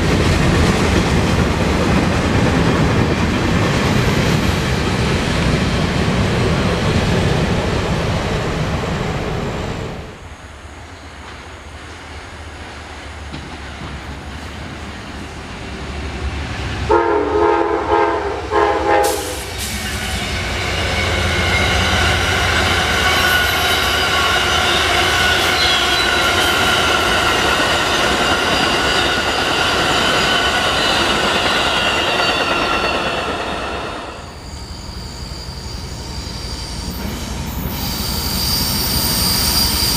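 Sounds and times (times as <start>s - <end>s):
passenger train passing loudly: 0.0s - 39.9s
train horn blasts: 16.9s - 21.3s
freight train wheels clacking: 18.9s - 34.3s
high wheel squeal: 19.5s - 39.9s.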